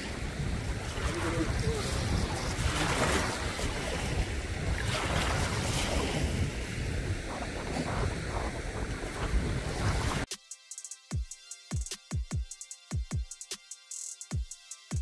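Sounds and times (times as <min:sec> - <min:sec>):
wind buffeting microphone: 0:00.0 - 0:10.3.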